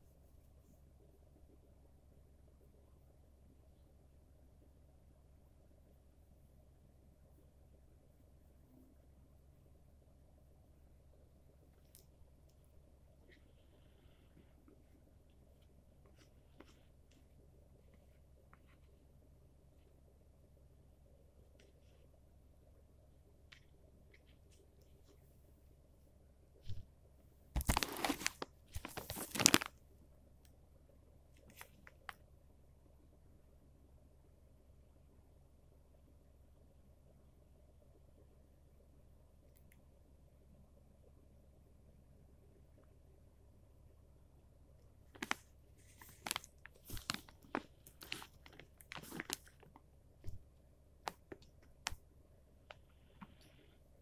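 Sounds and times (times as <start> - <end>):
plastic packet crinkling: 27.6 - 29.7, 45.2 - 49.7.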